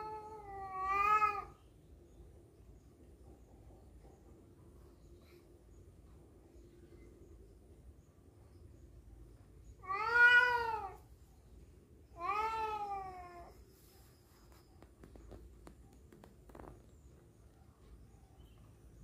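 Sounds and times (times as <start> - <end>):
cat yowling: 0.0 - 1.6, 9.8 - 11.1, 12.1 - 13.6.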